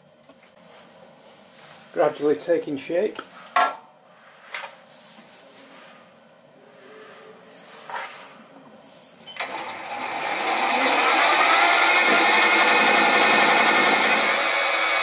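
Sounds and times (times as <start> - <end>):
mini lathe spinning up: 9.4 - 15.0.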